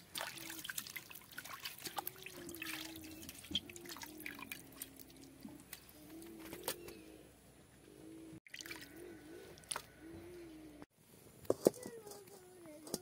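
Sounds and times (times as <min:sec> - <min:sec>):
water dripping and splashing: 0:00.0 - 0:05.9, 0:08.5 - 0:08.9, 0:09.6 - 0:09.9.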